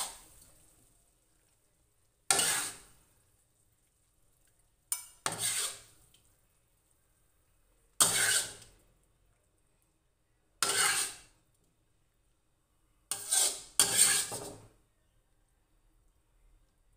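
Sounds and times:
spatula scraping metal wok: 0:02.3 - 0:03.0, 0:04.9 - 0:06.0, 0:08.0 - 0:08.8, 0:10.6 - 0:11.4, 0:13.1 - 0:14.7.

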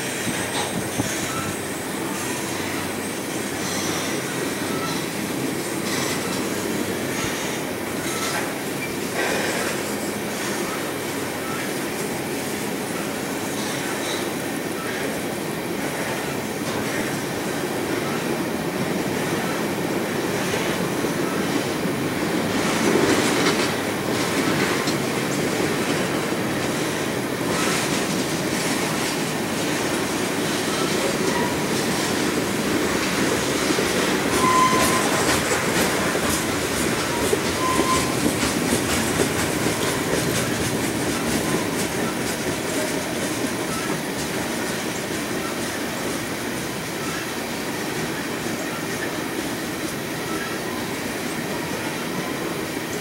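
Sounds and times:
rhythmic clicking over rail joints: 0:00.0 - 0:53.0
train wheels rumbling on rail: 0:00.0 - 0:53.0
wheel squeals: 0:33.0 - 0:42.9.

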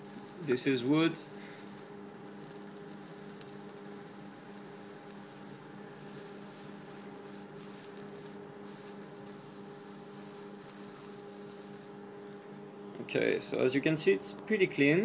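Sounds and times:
torch flame hissing: 0:00.0 - 0:12.0
electrical generator hum: 0:00.0 - 0:15.0.

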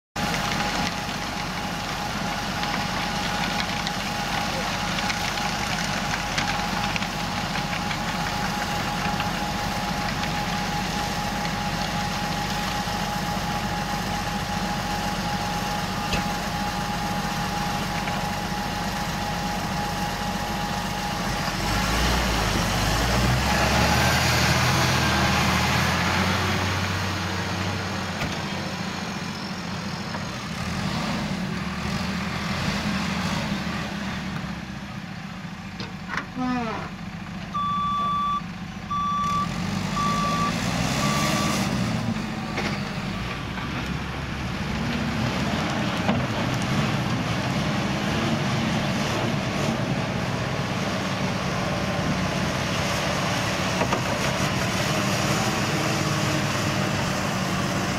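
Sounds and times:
tractor engine under load: 0:00.2 - 0:57.9.

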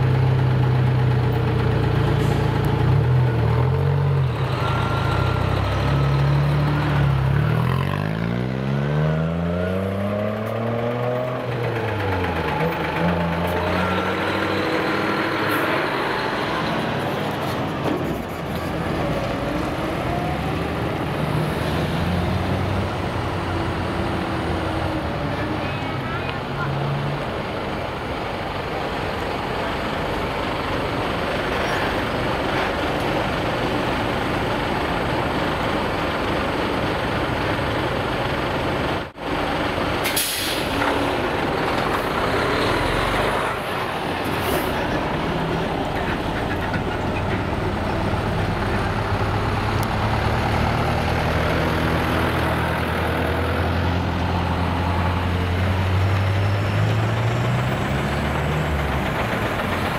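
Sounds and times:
diesel truck engines running: 0:00.0 - 0:59.9
air-brake hisses: 0:40.0 - 0:40.8.

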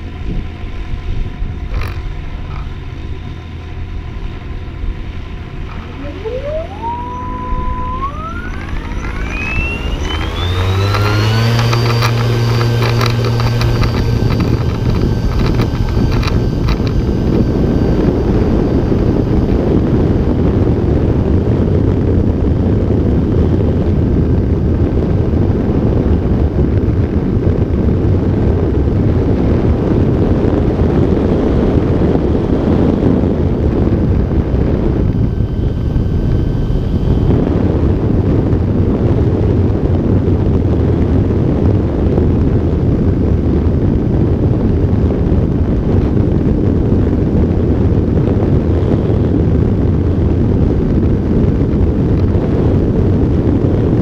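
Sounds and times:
electric motor whine rising: 0:00.0 - 0:39.8
propeller drone: 0:00.0 - 0:54.0
wind noise rushing: 0:05.6 - 0:54.0.

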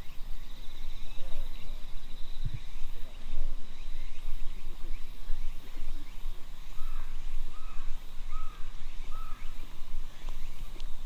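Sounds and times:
crow cawing: 0:06.8 - 0:09.5.

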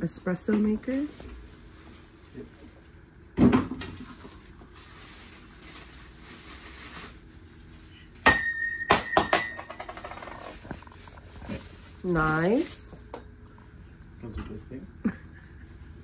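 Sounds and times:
plastic wrapping and cardboard rustling: 0:00.3 - 0:08.3, 0:09.7 - 0:13.1.

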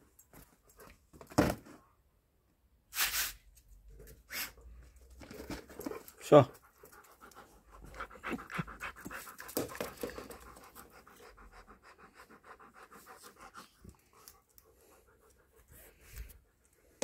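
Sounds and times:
dog panting rapidly: 0:05.8 - 0:16.6.

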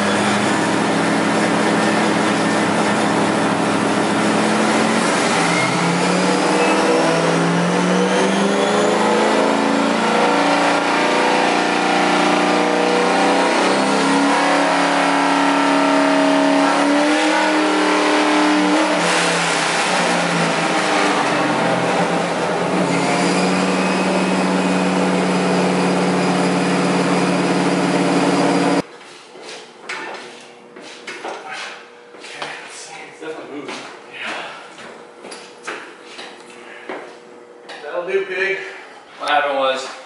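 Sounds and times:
car engine revving on dyno: 0:00.0 - 0:28.9.

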